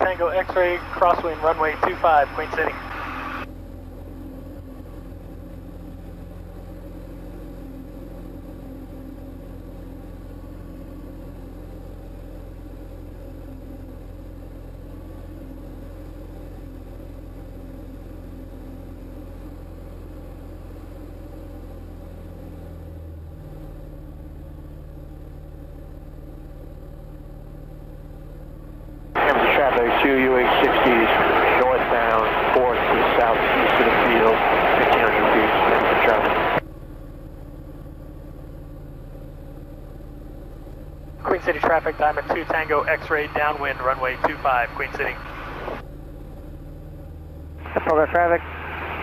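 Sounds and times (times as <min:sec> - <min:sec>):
aircraft engine and propeller droning: 0:00.0 - 0:49.0.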